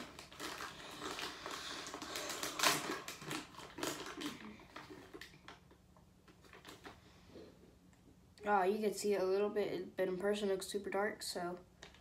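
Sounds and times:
plastic packaging crinkling: 0.0s - 7.1s.

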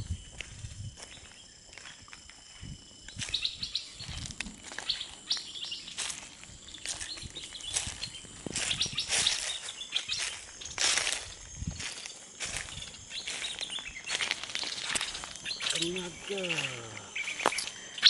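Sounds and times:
birds chirping: 3.1s - 18.0s
leaves rustling: 3.9s - 18.0s.

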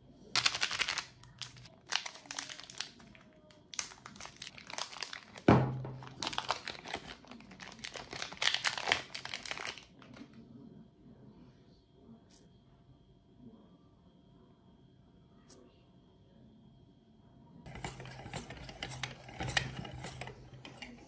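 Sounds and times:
plastic wrappers crinkling and tearing: 0.4s - 10.3s.

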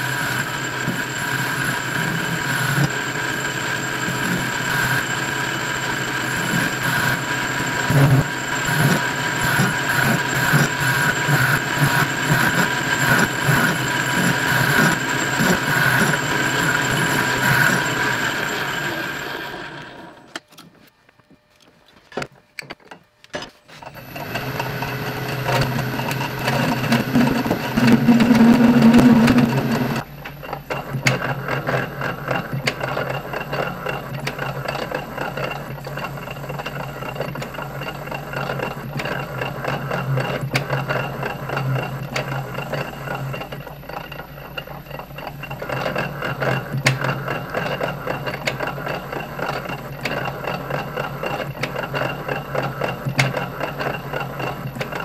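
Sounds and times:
loud hum: 0.0s - 20.3s, 24.0s - 30.1s
metal lathe drone: 0.0s - 20.4s, 23.8s - 55.0s.

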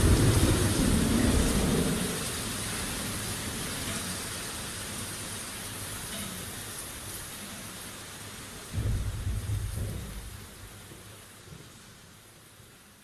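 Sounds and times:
low thunder rumble: 0.0s - 3.1s, 8.7s - 10.8s
rain hissing: 0.0s - 13.0s.

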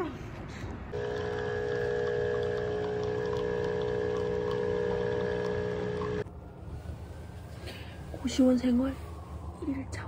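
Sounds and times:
espresso machine pump humming: 0.9s - 6.2s.

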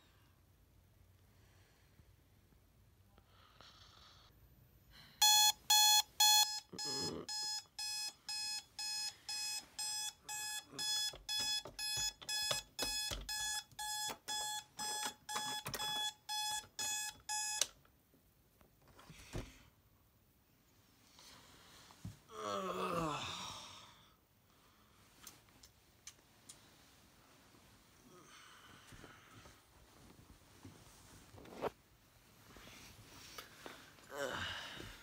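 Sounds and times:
alarm clock beeping: 5.2s - 17.7s.

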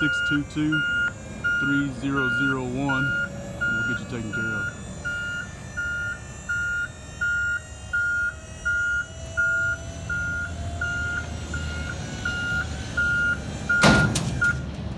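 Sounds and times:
warning beeper beeping: 0.0s - 14.6s
low truck hum: 0.0s - 14.9s.

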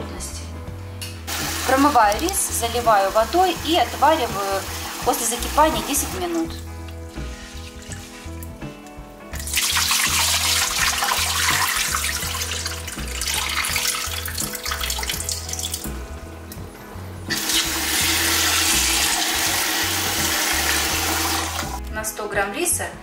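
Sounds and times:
water running from a tap: 1.3s - 8.3s, 9.4s - 16.0s, 17.3s - 21.8s
water sloshing in a saucepan: 1.3s - 8.5s, 9.4s - 16.0s.

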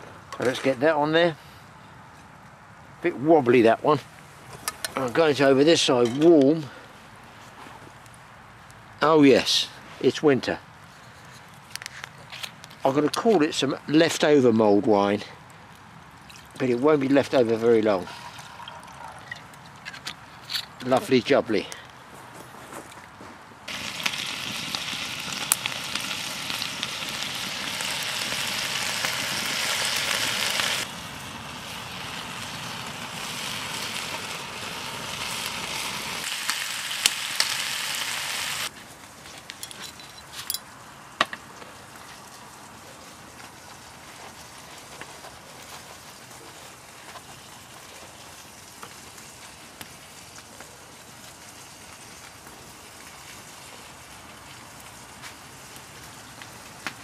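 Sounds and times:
bacon sizzling in a frying pan: 23.7s - 38.7s, 42.2s - 56.8s
sharp crackles: 23.7s - 57.0s.

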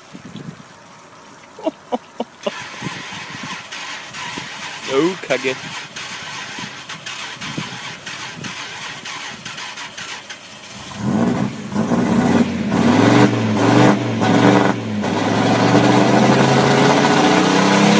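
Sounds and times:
truck engine revving: 2.4s - 17.9s.

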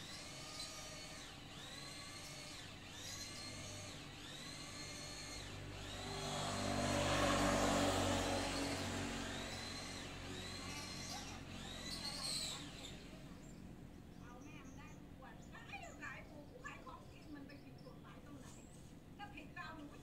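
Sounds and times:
rising and falling whine: 4.9s - 10.9s
passing vehicle engine: 5.2s - 12.2s.

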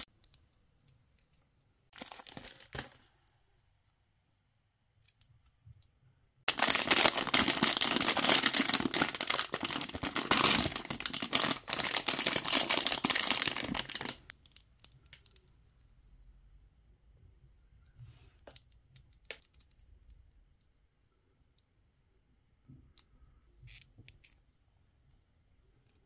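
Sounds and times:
plastic bag tearing and crinkling: 2.0s - 2.9s, 6.5s - 14.3s.

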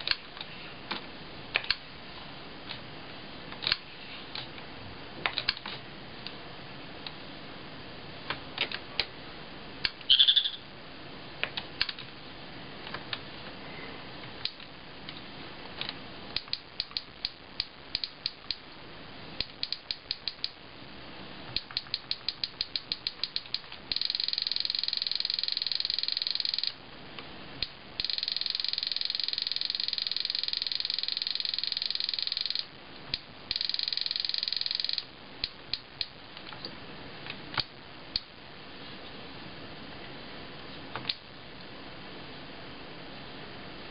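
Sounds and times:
electronic chirp: 10.1s - 10.7s, 23.9s - 26.7s, 28.0s - 32.6s, 33.5s - 35.1s
auto-repeat buzzing clicks: 15.8s - 18.8s, 19.4s - 20.8s, 21.5s - 36.5s.

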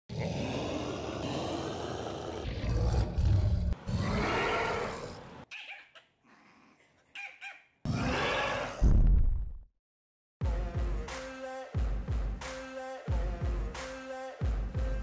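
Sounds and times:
dinosaur roars: 0.1s - 5.2s, 7.9s - 8.9s.

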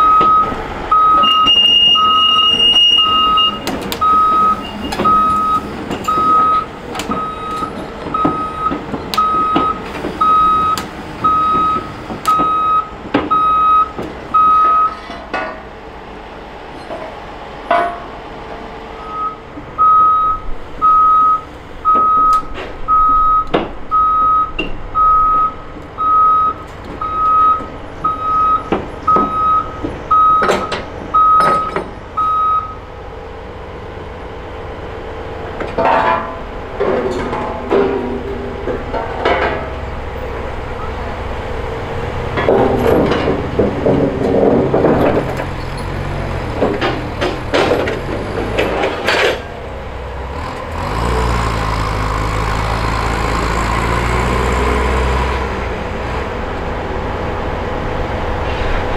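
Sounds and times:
excavator travel alarm beeping: 0.0s - 15.1s, 19.0s - 32.9s.

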